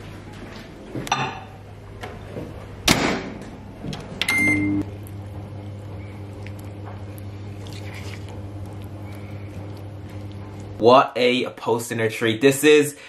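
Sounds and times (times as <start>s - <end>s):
microwave humming: 0.0s - 11.8s
microwave beep: 4.2s - 4.9s.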